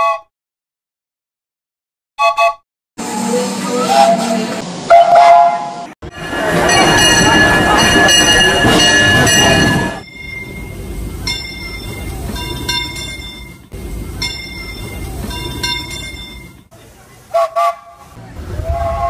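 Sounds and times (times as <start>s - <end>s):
train whistle toots: 2.2s - 5.9s, 17.3s - 19.0s
steam locomotive bell ringing: 3.0s - 16.7s.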